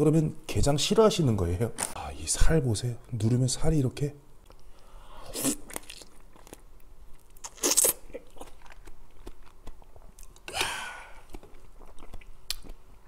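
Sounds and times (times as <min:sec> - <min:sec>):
crunchy chewing of crab: 0:05.2 - 0:13.0.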